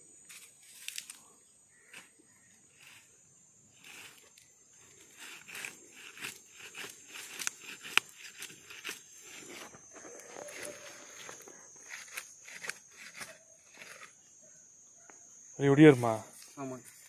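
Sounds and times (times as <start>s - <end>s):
twig cracking: 0.3s - 1.2s, 5.2s - 14.1s
high-pitched whine: 6.7s - 14.1s.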